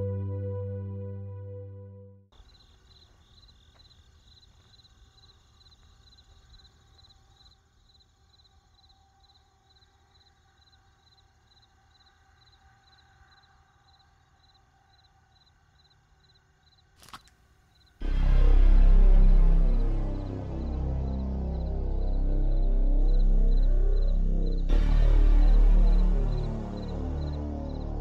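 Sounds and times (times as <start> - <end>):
cricket chirping: 2.3 - 18.0, 20.7 - 24.7
low hum: 18.0 - 28.0.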